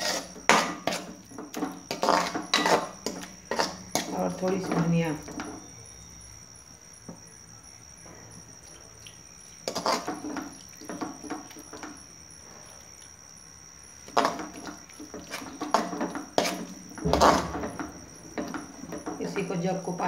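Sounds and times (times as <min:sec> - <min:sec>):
metal spatula scraping frying pan: 0:00.0 - 0:04.1, 0:09.6 - 0:10.4, 0:14.2 - 0:18.6.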